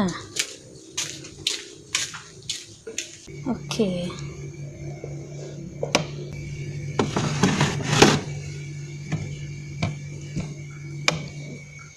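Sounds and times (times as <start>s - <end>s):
refrigerator hum: 0.0s - 11.9s
containers clattering on shelves: 7.0s - 8.3s.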